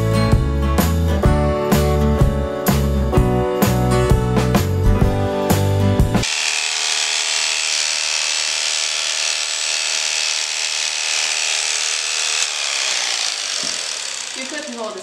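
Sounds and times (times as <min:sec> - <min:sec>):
electric clippers buzzing: 0:06.2 - 0:15.0.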